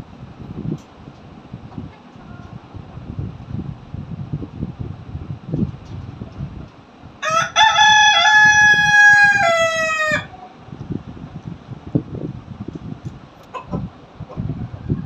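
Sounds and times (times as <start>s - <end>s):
rooster crowing: 7.2s - 10.4s.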